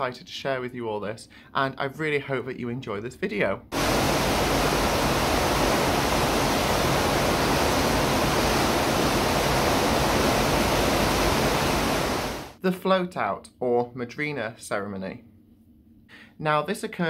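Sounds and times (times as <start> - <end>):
churning water of ship wake: 3.8 - 12.6.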